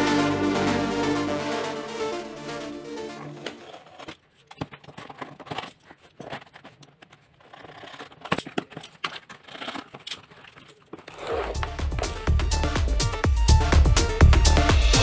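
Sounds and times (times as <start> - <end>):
scratchy scraping: 3.2 - 12.4.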